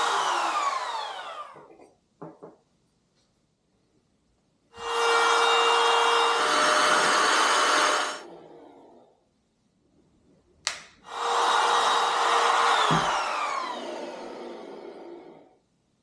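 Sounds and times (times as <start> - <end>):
router whining: 0.0 - 1.8, 4.8 - 8.9, 11.1 - 15.4.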